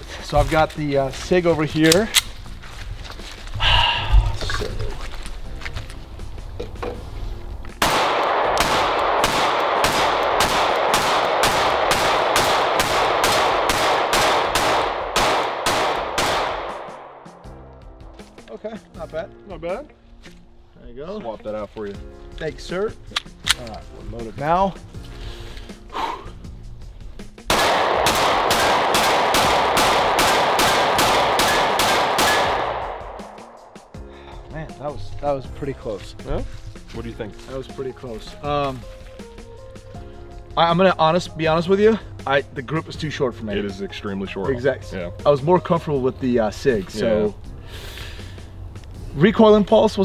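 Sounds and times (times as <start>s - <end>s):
pistol shots with echo: 7.8s - 17.3s, 27.5s - 33.6s.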